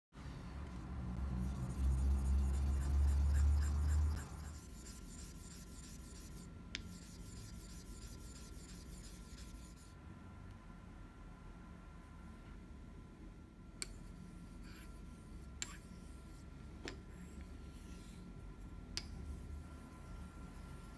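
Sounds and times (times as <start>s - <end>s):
stone rubbing on wet whetstone: 1.4s - 9.9s.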